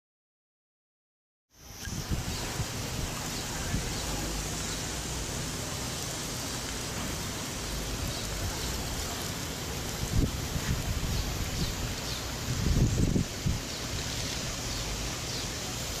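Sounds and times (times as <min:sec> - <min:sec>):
wind rushing: 0:01.6 - 0:04.5, 0:09.8 - 0:14.7
wind buffeting microphone: 0:01.6 - 0:05.0, 0:07.7 - 0:15.7.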